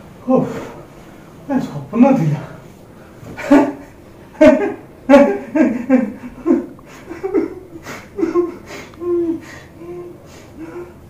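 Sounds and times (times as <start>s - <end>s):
young man laughing: 3.4s - 10.8s.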